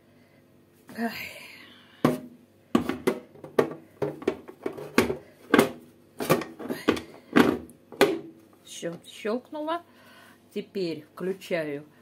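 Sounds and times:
bread pan clicking and knocking: 0:02.8 - 0:08.3.

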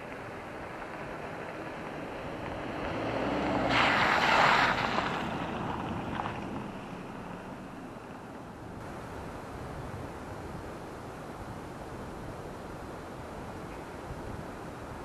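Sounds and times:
car driving past on dirt road: 0:00.1 - 0:09.0
wind noise on microphone: 0:08.8 - 0:15.0.

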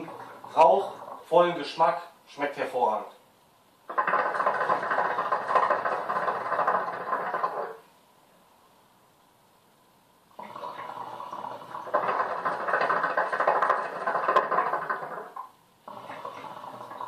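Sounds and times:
hookah water bubbling: 0:00.0 - 0:01.3, 0:03.9 - 0:07.9, 0:10.3 - 0:17.0.

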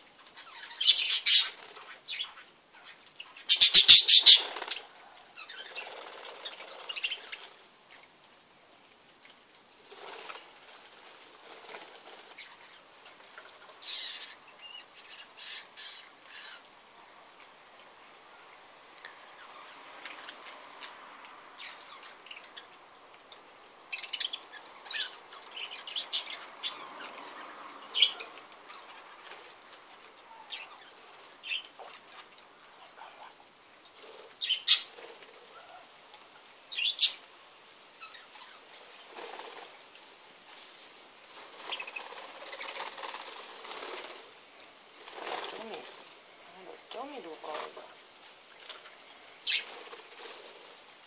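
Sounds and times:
wings fluttering: 0:00.2 - 0:02.4, 0:03.6 - 0:07.6, 0:09.8 - 0:14.4, 0:28.0 - 0:32.3, 0:38.4 - 0:46.2, 0:48.6 - 0:51.0
budgerigars chirping: 0:00.4 - 0:04.8, 0:23.9 - 0:29.0.

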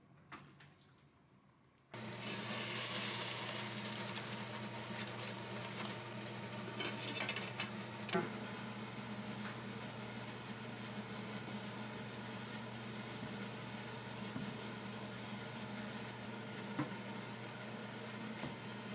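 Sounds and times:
appliance motor humming: 0:02.0 - 0:18.9.

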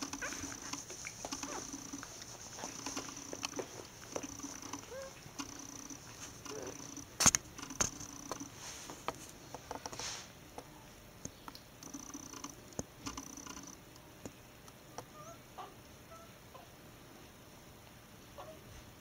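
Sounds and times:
sharp clicks: 0:00.0 - 0:08.5, 0:10.6 - 0:15.1
puppies suckling and grunting: 0:00.0 - 0:08.6
faint whine: 0:00.0 - 0:09.5.

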